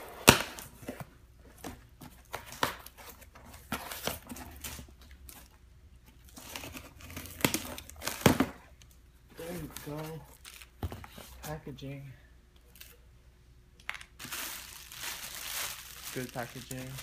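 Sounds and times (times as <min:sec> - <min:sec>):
cardboard and tape crinkling: 0:09.4 - 0:11.5, 0:14.2 - 0:17.0.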